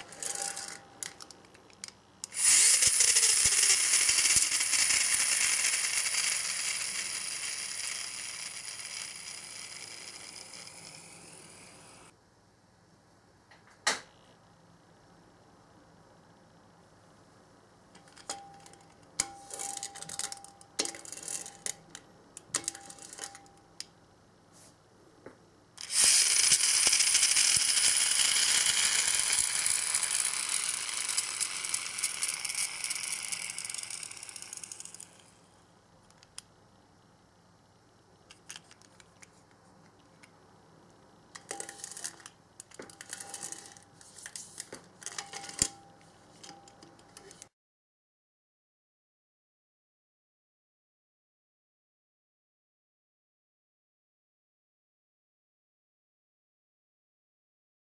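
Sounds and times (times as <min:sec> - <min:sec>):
toy car spring motor whirring: 0:00.0 - 0:01.2, 0:02.2 - 0:12.1, 0:25.8 - 0:35.4, 0:41.4 - 0:45.7
toy car clicks and rattles: 0:00.0 - 0:11.7, 0:19.5 - 0:23.5, 0:25.8 - 0:35.3, 0:38.3 - 0:39.3, 0:41.4 - 0:45.8.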